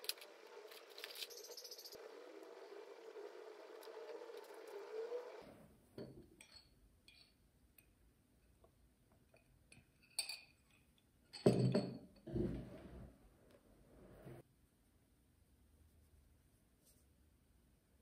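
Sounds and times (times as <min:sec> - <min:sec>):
glass clinking: 0:06.0 - 0:07.4, 0:09.4 - 0:12.1.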